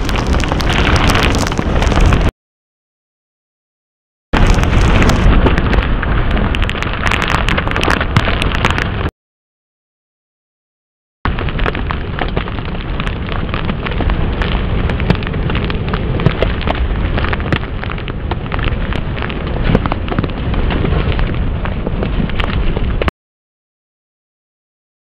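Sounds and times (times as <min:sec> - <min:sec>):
driving rain: 0:00.0 - 0:02.3, 0:04.4 - 0:09.1, 0:11.3 - 0:23.1
sharp crackles: 0:00.0 - 0:02.3, 0:04.4 - 0:09.1, 0:11.3 - 0:23.1
wind on microphone: 0:00.0 - 0:02.3, 0:04.4 - 0:09.1, 0:11.3 - 0:23.1.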